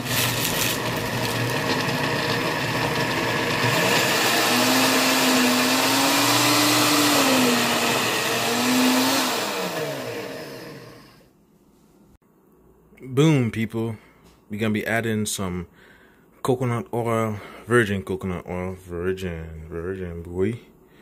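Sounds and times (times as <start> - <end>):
blender running: 0.0 - 11.3.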